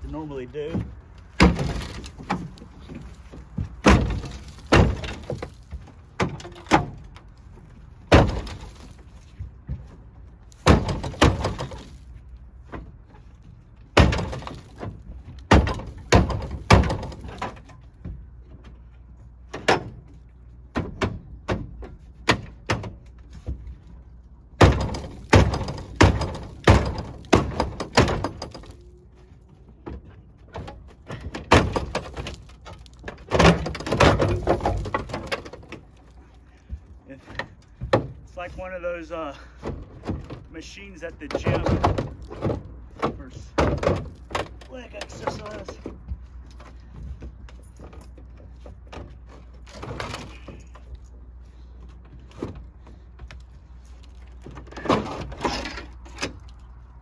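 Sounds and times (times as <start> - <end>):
feet kicking steel tailgate: 0.6 - 11.9, 13.9 - 18.8, 24.6 - 28.8, 29.8 - 38.3.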